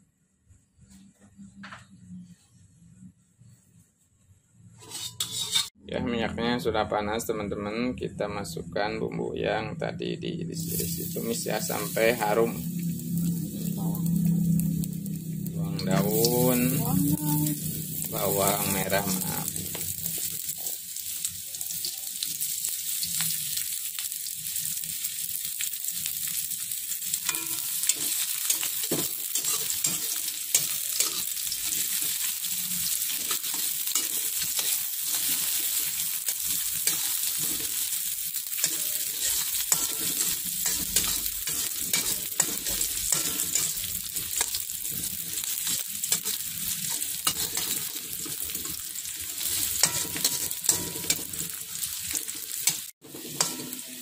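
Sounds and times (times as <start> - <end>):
metal spatula scraping pan: 4.7 - 5.8, 27.1 - 54.0
shallots sizzling in hot oil: 4.8 - 5.8, 10.5 - 54.0.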